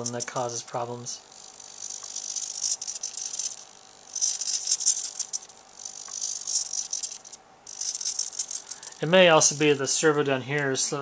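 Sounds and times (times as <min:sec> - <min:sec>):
servos buzzing and chattering: 0:00.0 - 0:10.9.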